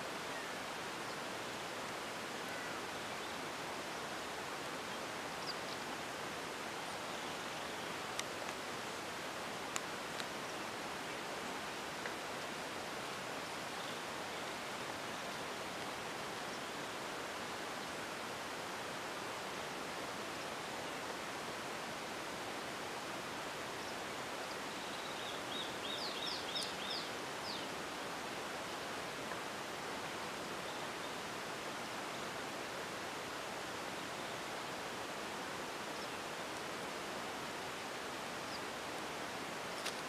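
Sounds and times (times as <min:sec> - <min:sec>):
outdoor background hiss: 0:00.0 - 0:40.0
bird chirping: 0:24.7 - 0:27.7.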